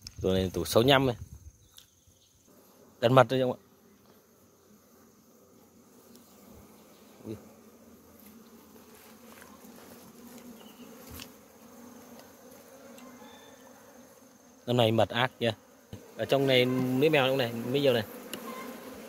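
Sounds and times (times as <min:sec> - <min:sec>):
honeybees buzzing: 0:00.5 - 0:19.0
sharp click of hive frame: 0:10.3 - 0:11.4, 0:12.1 - 0:13.7, 0:18.2 - 0:18.7.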